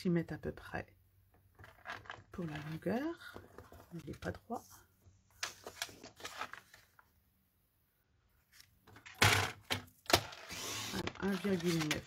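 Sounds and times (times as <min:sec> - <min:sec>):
cardstock rustling and clicking: 0:05.3 - 0:07.0, 0:08.6 - 0:12.0.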